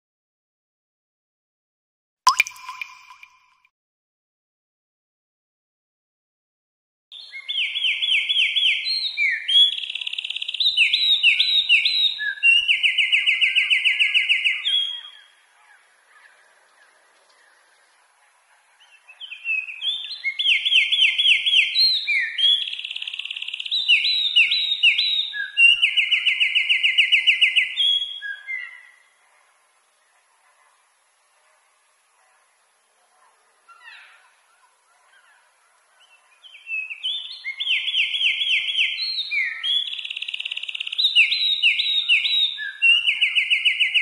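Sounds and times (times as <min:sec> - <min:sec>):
wren singing trills: 0:36.5 - 0:44.0.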